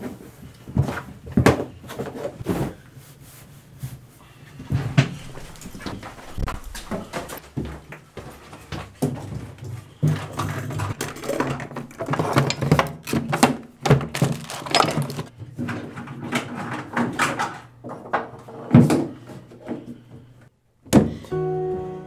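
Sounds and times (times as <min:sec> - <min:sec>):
cabinet knocks and clatter: 0:10.1 - 0:15.3.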